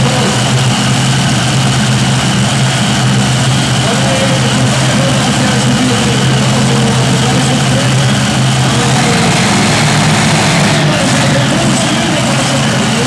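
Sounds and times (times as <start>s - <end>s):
engines idling with low hum: 0.0s - 13.0s.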